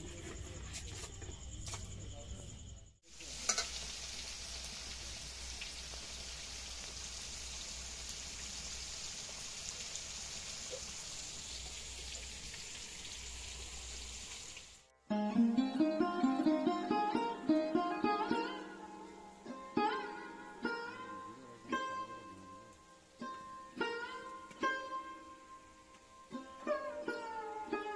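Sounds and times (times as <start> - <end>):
vegetables sizzling in hot oil: 3.0 - 14.9
sitar music: 14.9 - 27.9.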